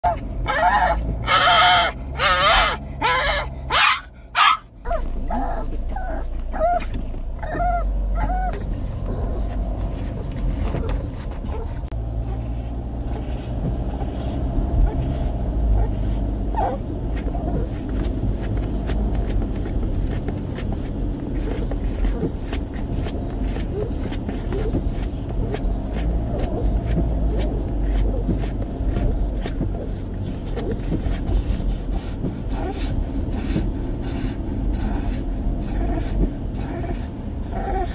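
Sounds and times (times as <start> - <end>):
dog barking and yelping: 0.0 - 19.3, 34.8 - 37.9
car rumble: 0.0 - 37.9
dog pawing at seat: 6.6 - 11.9, 16.1 - 32.8.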